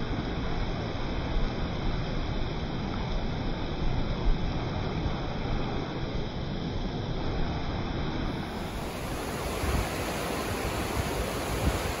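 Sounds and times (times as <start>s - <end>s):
river water rushing: 8.3s - 12.0s
wind buffeting microphone: 8.3s - 12.0s.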